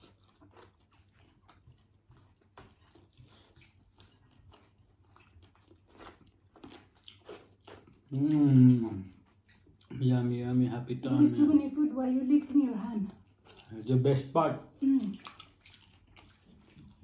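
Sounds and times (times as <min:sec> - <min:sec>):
chewing and wet mouth smacks: 0:00.0 - 0:10.0, 0:13.0 - 0:14.0, 0:14.7 - 0:17.0.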